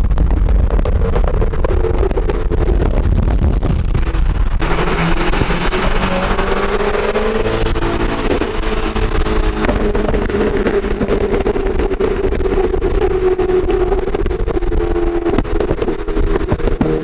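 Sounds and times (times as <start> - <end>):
wind and road noise: 0.0 - 17.0
car engine accelerating: 1.4 - 17.0.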